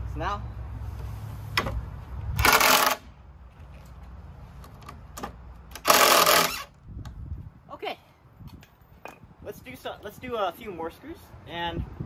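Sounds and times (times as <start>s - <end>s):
impact driver driving screw into wood: 2.4s - 3.1s, 5.2s - 6.7s.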